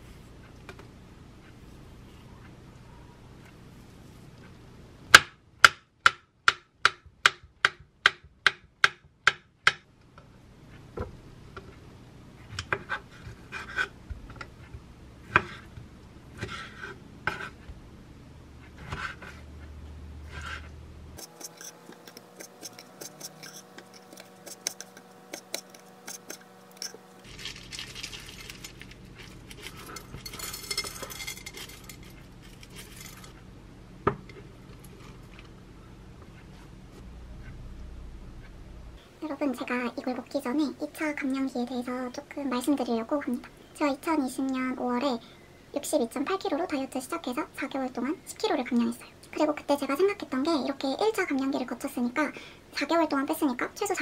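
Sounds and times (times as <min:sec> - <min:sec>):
knife cutting fruit: 0:21.2 - 0:27.0
granola rustling into bowl: 0:26.2 - 0:33.4.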